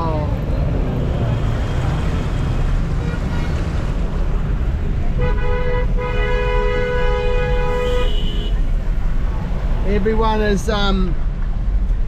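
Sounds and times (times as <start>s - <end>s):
car horn honking: 5.2s - 8.7s.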